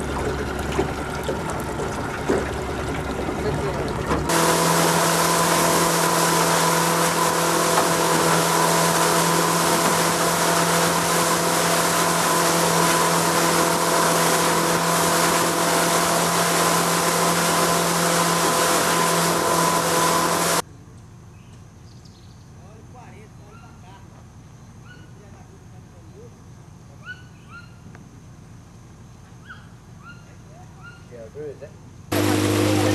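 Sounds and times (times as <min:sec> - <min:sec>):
motorboat engine drone: 0:00.0 - 0:20.6, 0:32.0 - 0:32.9
water and wind rushing: 0:00.0 - 0:20.6, 0:32.1 - 0:32.9
faint outdoor ambience: 0:20.6 - 0:32.9.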